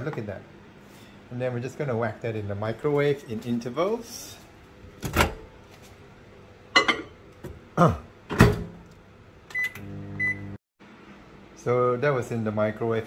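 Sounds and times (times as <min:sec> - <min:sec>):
microwave oven humming: 0:04.2 - 0:11.7.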